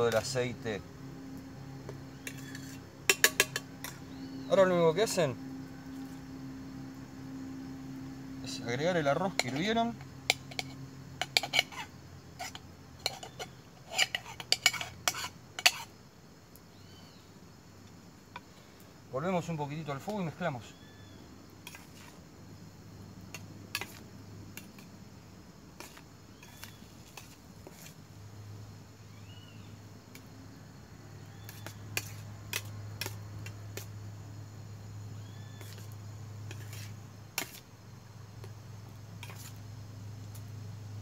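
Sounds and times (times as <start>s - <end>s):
utensil scraping frying pan: 2.1s - 4.1s, 9.3s - 9.7s, 10.3s - 15.9s, 21.6s - 22.2s, 23.3s - 24.0s, 25.8s - 28.0s, 31.5s - 33.1s, 36.5s - 37.6s
utensil knocking pan: 3.1s - 4.0s.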